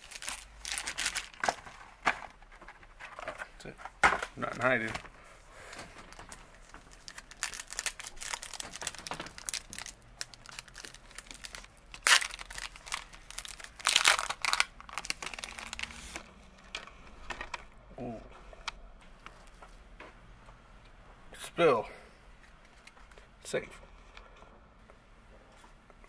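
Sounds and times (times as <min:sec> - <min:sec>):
card pack tearing open: 0:00.0 - 0:01.6, 0:06.9 - 0:16.2
foil wrappers crinkling: 0:00.0 - 0:01.6, 0:06.0 - 0:16.8.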